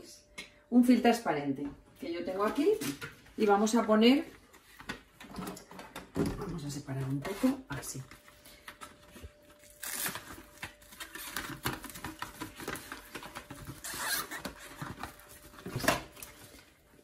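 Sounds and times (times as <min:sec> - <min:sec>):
cling film crinkling and rustling: 0:07.4 - 0:17.0.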